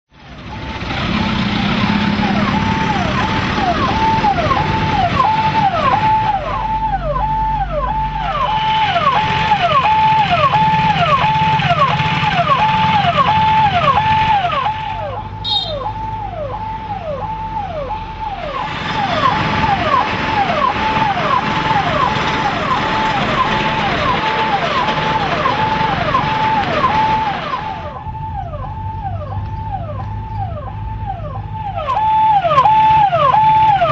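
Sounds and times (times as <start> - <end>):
electronic alarm tone: 1.8 - 28.1.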